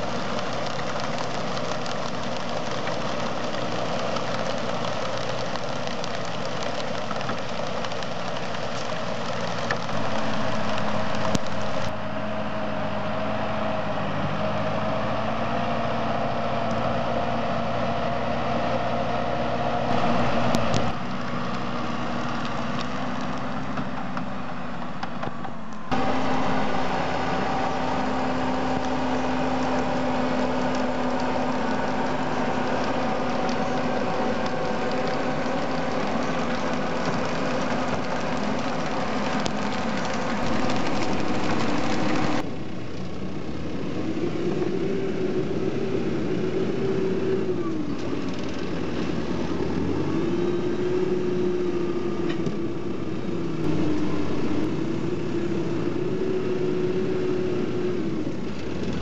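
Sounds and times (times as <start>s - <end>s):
tractor diesel engine running: 0.0s - 14.8s, 15.9s - 44.5s.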